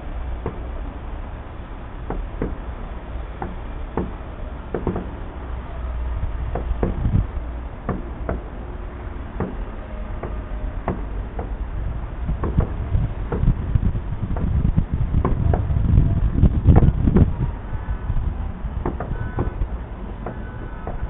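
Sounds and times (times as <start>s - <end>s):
low rumble: 0.0s - 21.0s
sharp knocks and taps: 2.1s - 2.6s, 3.4s - 5.2s, 6.5s - 7.1s, 12.4s - 13.5s, 18.8s - 19.6s.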